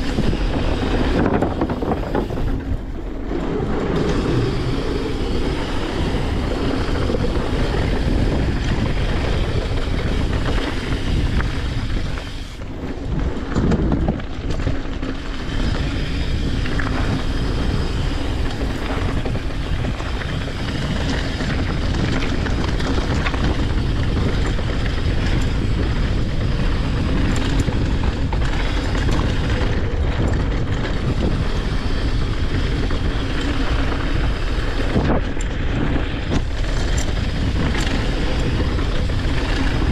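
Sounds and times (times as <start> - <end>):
bike tyres rumbling on gravel: 0.0 - 39.9
wind noise on microphone: 0.0 - 39.9.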